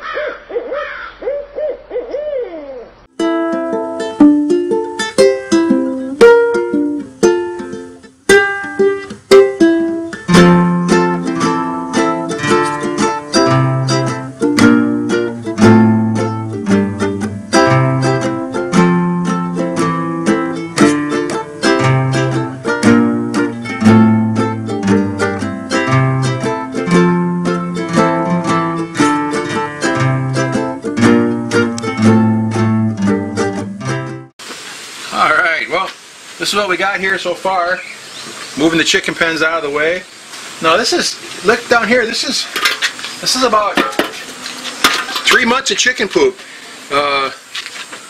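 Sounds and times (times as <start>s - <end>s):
plucked-string tune: 3.1s - 34.3s
bass line: 9.3s - 34.3s.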